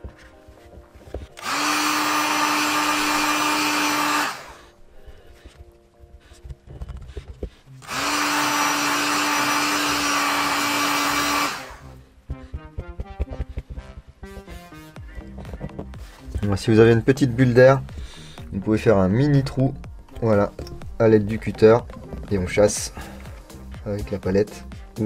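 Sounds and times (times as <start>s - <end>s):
hot-air blower running: 1.1s - 4.8s, 7.1s - 12.0s.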